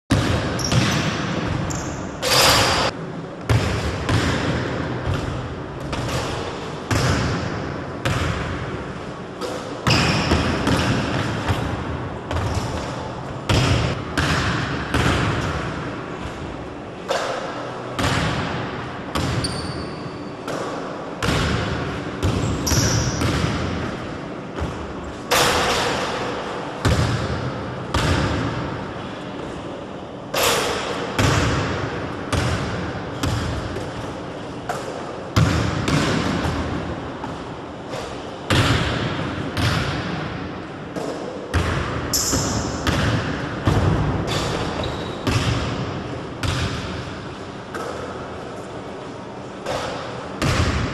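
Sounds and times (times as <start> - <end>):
basketball bouncing on wooden floor: 0.1 - 1.9, 44.8 - 45.8, 46.4 - 46.9.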